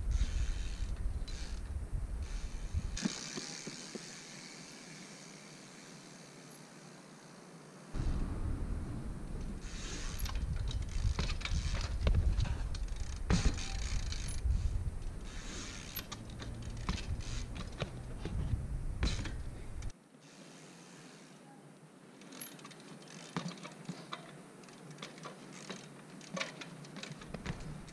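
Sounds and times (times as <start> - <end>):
bicycle freehub ratchet buzzing: 0.1 - 7.4, 9.7 - 21.4, 22.3 - 23.7, 24.6 - 27.9
bike clicks and knocks: 3.0 - 4.3, 9.4 - 19.9, 22.2 - 27.9
low rumble: 8.0 - 13.3.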